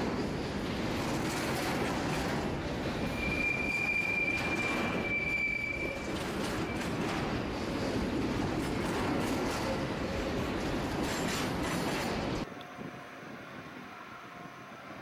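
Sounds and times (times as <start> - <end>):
train wheels rumbling on rails: 0.0 - 12.5
high wheel squeal: 3.0 - 7.2.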